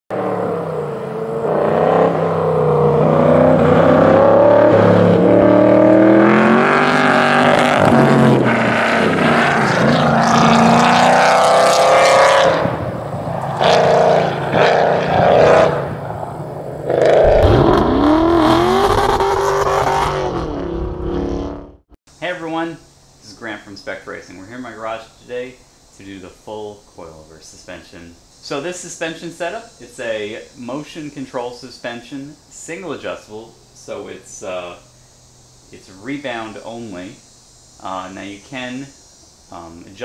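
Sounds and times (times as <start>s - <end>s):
car engine revving: 0.1s - 21.9s
deep swooping sound: 14.4s - 21.8s.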